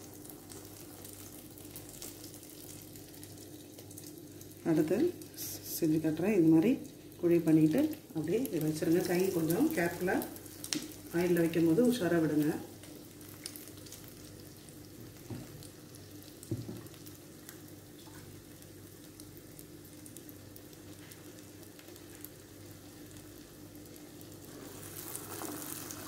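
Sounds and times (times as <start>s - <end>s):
fritters sizzling in hot oil: 0.0s - 26.0s
soft knock: 16.5s - 16.9s.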